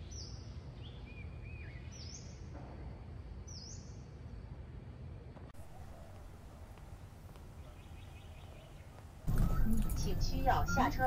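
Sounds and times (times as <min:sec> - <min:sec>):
birds calling: 0:05.6 - 0:11.0
whistled bird notes: 0:07.6 - 0:11.0.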